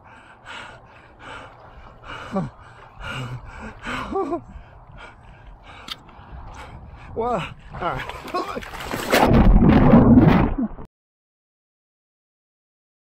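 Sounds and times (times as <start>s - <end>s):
man breathing hard and gasping: 0.0s - 7.8s.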